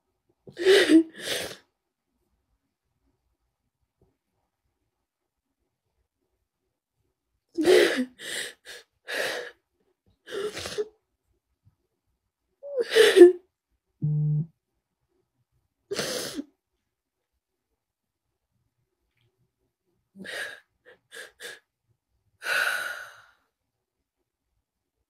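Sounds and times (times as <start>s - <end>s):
woman sobbing: 12.6s - 13.4s.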